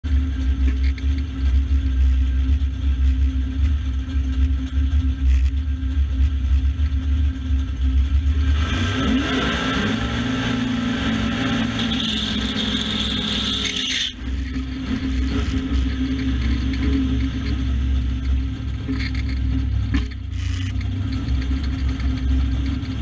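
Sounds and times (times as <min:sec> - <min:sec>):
car engine idling and revving: 0:00.0 - 0:23.0
tyres spinning in a burnout: 0:08.4 - 0:17.6.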